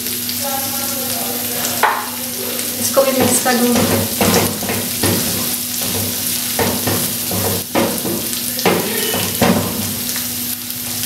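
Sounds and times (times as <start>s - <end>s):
meat sizzling in a frying pan: 0.0s - 11.0s
spatula scraping a pan: 3.3s - 10.0s.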